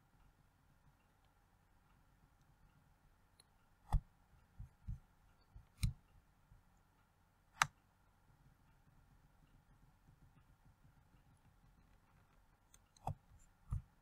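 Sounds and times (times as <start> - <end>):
computer mouse clicking: 5.6 - 6.0, 11.8 - 14.0.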